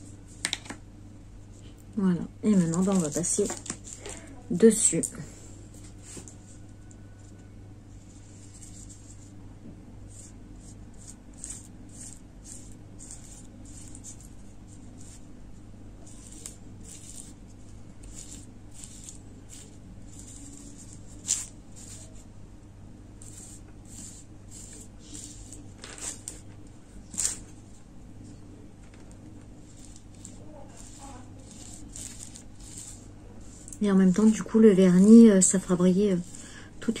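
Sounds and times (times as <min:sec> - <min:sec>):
paintbrush brushing swishes: 0:23.2 - 0:26.2, 0:29.6 - 0:33.8.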